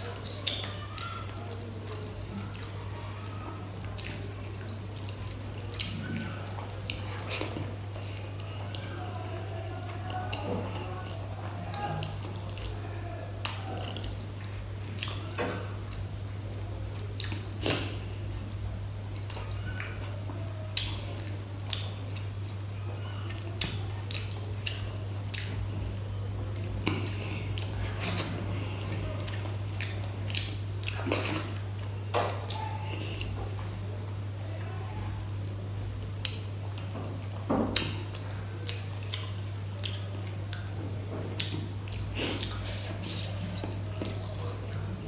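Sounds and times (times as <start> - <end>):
wet chewing and mouth smacks: 0.0 - 9.4, 13.4 - 16.1, 16.9 - 18.0, 19.0 - 25.7, 26.5 - 33.4, 37.8 - 45.0
steady low hum: 0.0 - 45.0.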